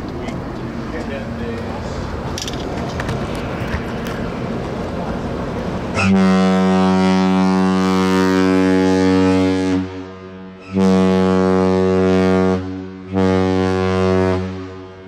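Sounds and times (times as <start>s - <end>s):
ship horn blasts: 5.9s - 15.0s.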